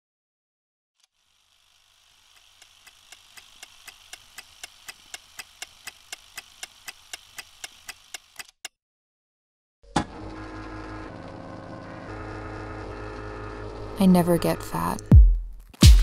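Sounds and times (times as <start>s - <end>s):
rapid ticking: 1.3s - 8.6s.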